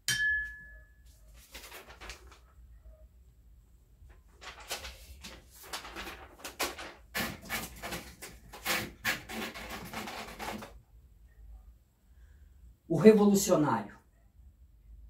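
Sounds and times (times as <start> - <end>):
paper rustling: 1.1 - 2.6, 4.0 - 10.8
typewriter clicks and knocks: 6.0 - 10.7.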